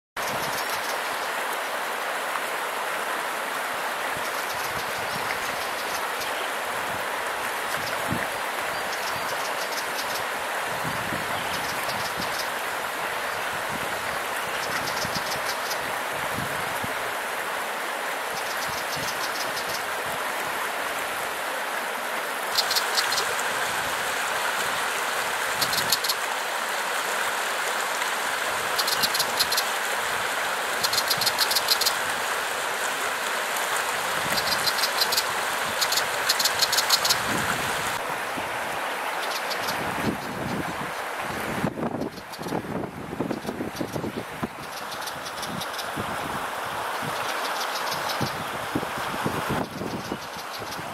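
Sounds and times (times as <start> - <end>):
creek rushing: 0.2 - 50.9
high-pitched chirring calls: 22.5 - 23.4, 28.8 - 29.7, 34.3 - 37.3.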